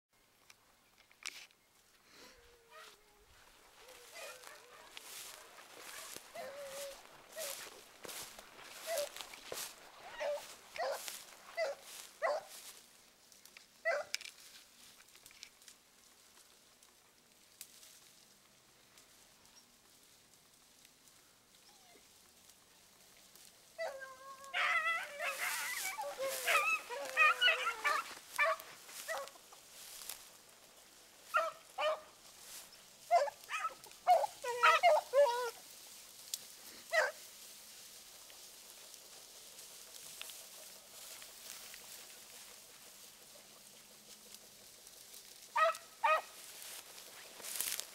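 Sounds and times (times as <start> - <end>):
beagles barking and baying: 2.5 - 12.8, 13.8 - 14.2, 23.7 - 36.0, 36.6 - 37.7, 38.4 - 47.9.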